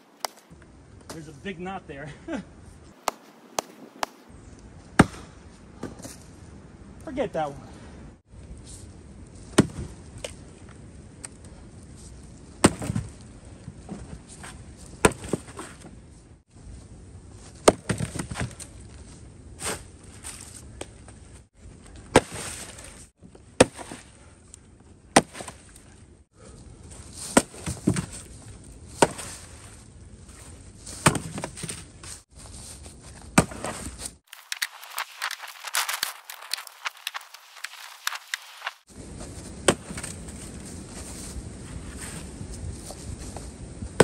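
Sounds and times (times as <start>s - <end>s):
axe chopping logs: 0.2s - 1.2s, 3.0s - 4.3s, 5.0s - 6.2s, 9.5s - 10.4s, 12.6s - 13.2s, 15.0s - 15.8s, 17.6s - 18.6s, 22.0s - 22.9s, 23.6s - 24.2s, 25.1s - 25.6s, 27.2s - 28.2s, 29.0s - 29.4s, 31.0s - 31.8s, 33.4s - 34.6s, 39.6s - 40.3s
dense crackling rustle: 29.7s - 43.9s.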